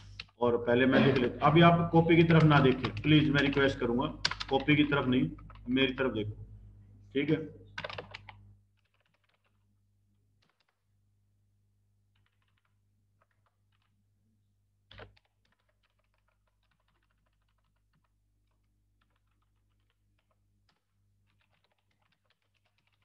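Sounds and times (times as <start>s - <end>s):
typing on keyboard: 0.0s - 0.4s, 2.1s - 5.7s, 7.8s - 9.6s, 10.4s - 10.8s, 12.1s - 14.0s, 14.8s - 23.0s
low steady hum: 0.0s - 8.8s.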